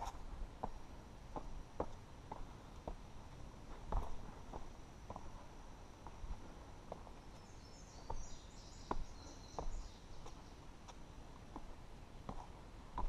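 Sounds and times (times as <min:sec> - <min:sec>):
footsteps on rock: 0:03.7 - 0:05.4, 0:08.9 - 0:13.0
bird chirping: 0:07.2 - 0:11.0.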